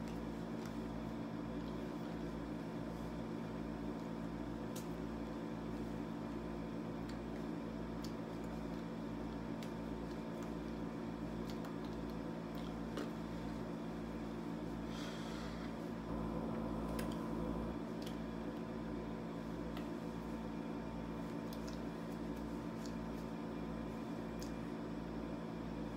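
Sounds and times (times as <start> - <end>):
low hum and drone: 0.0 - 25.9.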